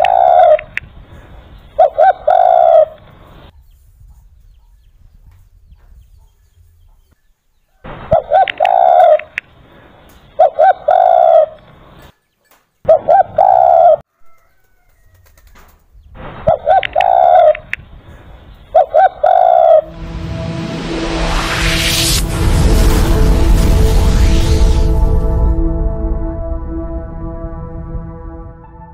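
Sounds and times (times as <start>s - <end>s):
dove cooing: 0.0s - 0.7s, 1.8s - 3.2s, 8.1s - 9.4s, 10.4s - 11.6s, 12.9s - 14.0s, 16.5s - 19.9s.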